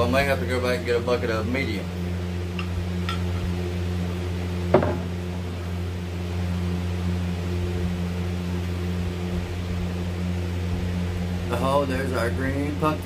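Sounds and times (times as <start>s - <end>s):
low machine hum: 0.0s - 13.0s
sharp metallic knock: 4.7s - 5.1s.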